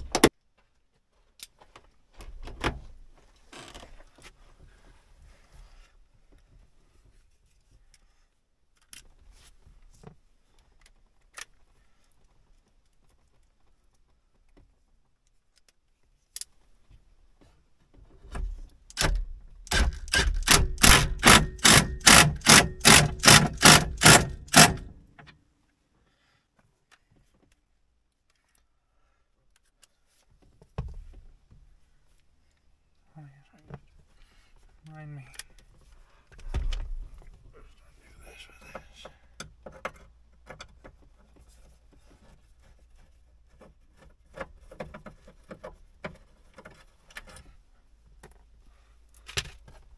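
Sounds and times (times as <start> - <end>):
clicks and knocks of handling parts: 8.7 - 9.2, 14.5 - 17.0, 38.6 - 48.5, 49.1 - 49.9
cordless power driver driving screw: 18.9 - 25.0.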